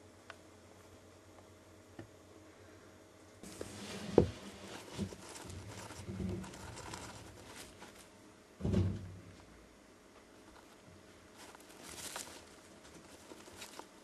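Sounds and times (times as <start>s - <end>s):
hamster digging in bedding: 3.4s - 8.8s, 10.3s - 14.0s
dull thump: 8.6s - 9.3s.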